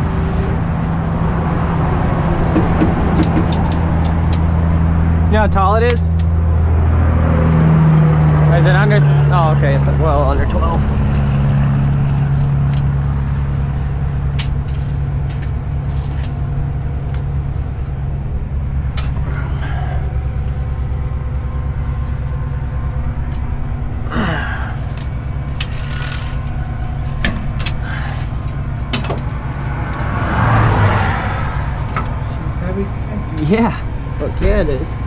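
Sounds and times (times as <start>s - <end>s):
truck diesel engine running: 0.0s - 35.0s
metal clicks and clanks: 2.6s - 4.5s.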